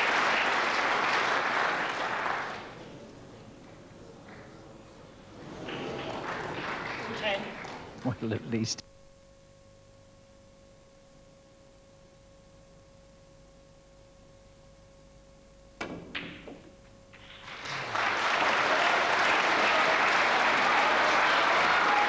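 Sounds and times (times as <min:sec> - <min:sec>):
audience applause: 0:00.0 - 0:08.8, 0:17.1 - 0:22.0
faint steady hum: 0:00.0 - 0:22.0
snooker balls clicking: 0:02.4 - 0:08.6, 0:15.8 - 0:17.8.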